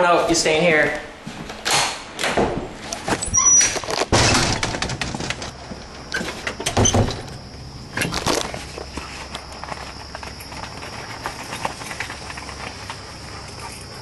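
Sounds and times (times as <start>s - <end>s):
footsteps: 0.0s - 6.7s, 8.0s - 14.0s
door opening and shutting: 1.4s - 8.6s
knocks and clatters: 2.2s - 7.4s.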